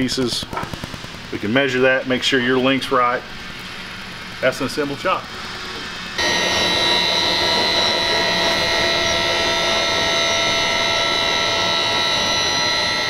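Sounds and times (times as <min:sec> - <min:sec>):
machine whining: 0:00.0 - 0:13.0.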